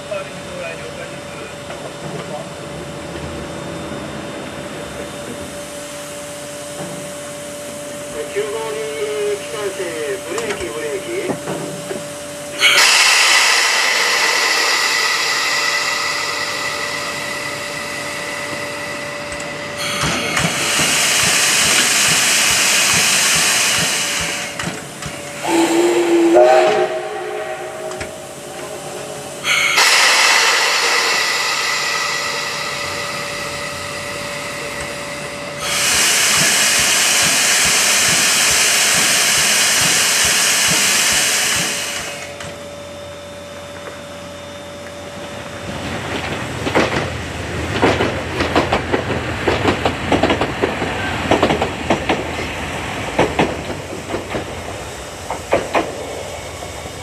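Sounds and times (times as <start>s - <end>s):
steam locomotive hissing steam: 0.0s - 57.0s
steam whistle blast rising: 12.6s - 20.7s, 25.4s - 34.2s.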